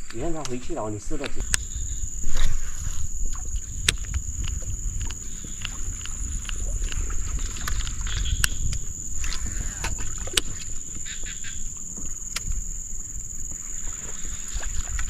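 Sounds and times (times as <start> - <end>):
sharp clicks: 0.0 - 1.6
high-pitched insect drone: 0.0 - 15.0.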